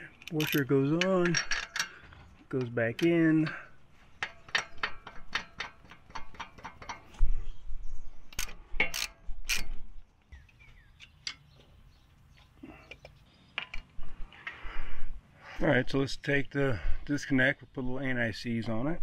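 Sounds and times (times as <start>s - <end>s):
metal nut clicking on threaded pin: 0.2s - 1.9s, 4.2s - 7.0s.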